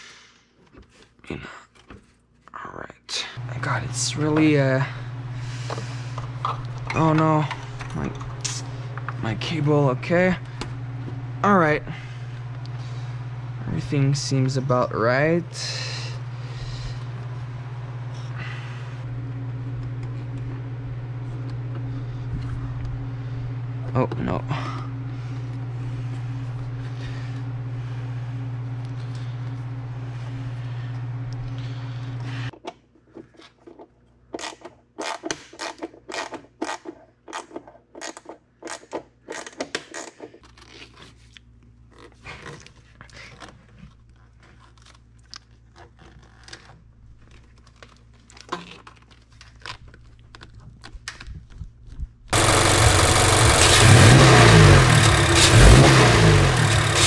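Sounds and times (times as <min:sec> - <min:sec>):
low hum: 0:03.4 - 0:32.5
car engine revving: 0:52.4 - 0:57.0.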